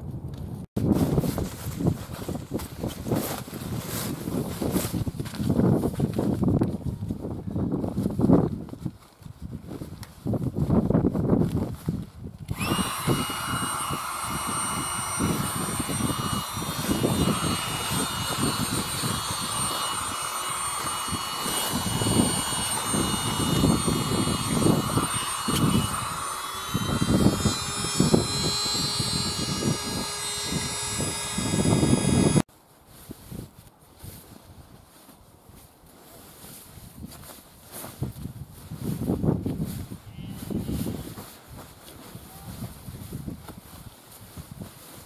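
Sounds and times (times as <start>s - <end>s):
wind gusts on microphone: 0.0s - 35.6s, 36.4s - 45.0s
air pump whining: 12.5s - 32.5s.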